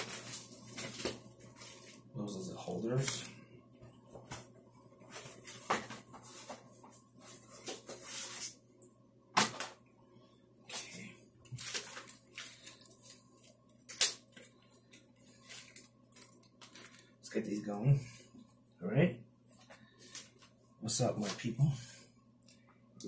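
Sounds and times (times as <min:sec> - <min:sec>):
plastic packaging crinkling: 0:00.0 - 0:02.1, 0:11.4 - 0:17.2.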